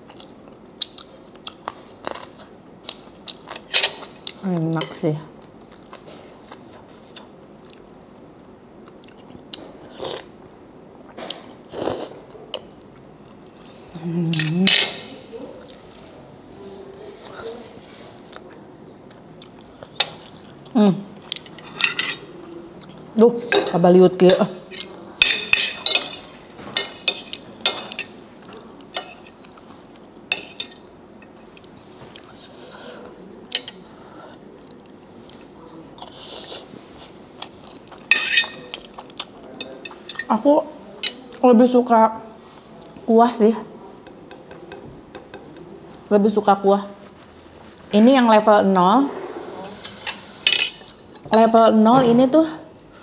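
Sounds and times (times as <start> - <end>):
chewing: 0.1 - 4.4, 18.2 - 21.6.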